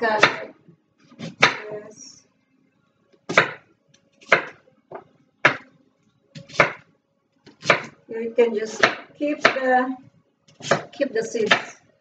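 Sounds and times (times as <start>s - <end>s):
knife chopping on cutting board: 1.1s - 1.6s, 3.3s - 3.6s, 4.2s - 5.6s, 6.4s - 6.8s, 7.5s - 8.0s, 8.8s - 9.6s, 10.5s - 11.7s.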